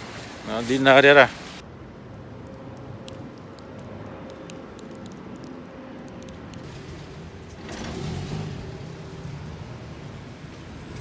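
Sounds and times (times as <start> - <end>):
traffic rumble on wet streets: 0.0 - 11.0
car passing on wet road: 2.2 - 11.0.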